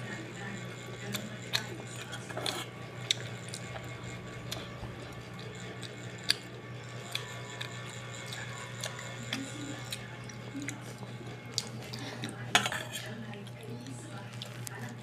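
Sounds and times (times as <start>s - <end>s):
chewing: 0.8s - 15.0s
plastic fork scraping a pot: 1.6s - 3.9s, 11.7s - 13.2s.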